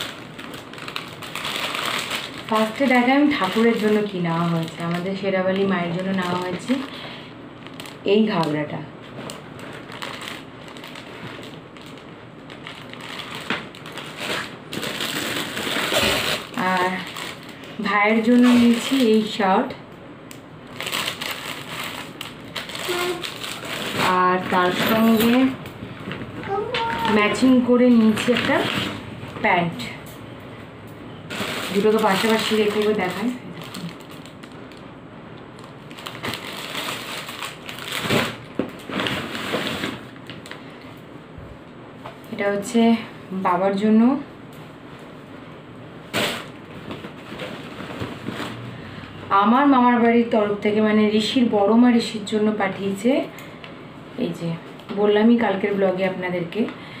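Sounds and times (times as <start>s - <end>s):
plastic packaging crinkling: 0.0s - 19.4s, 20.6s - 25.5s, 31.3s - 40.8s.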